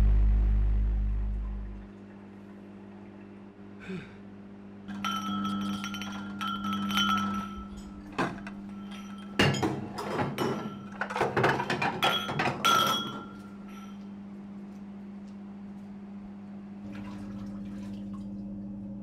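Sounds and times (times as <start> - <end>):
steady low hum: 0.0 - 19.0
plates and glasses clinking: 4.9 - 14.0.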